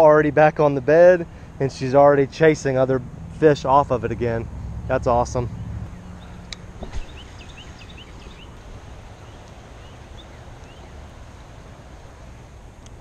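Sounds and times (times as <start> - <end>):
steady low rumble: 2.8 - 13.0
birds chirping: 4.0 - 13.0.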